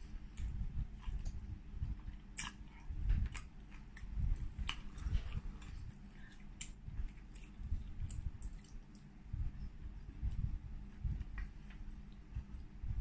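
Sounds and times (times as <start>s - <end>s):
close chewing with mouth smacks: 0.2s - 9.2s.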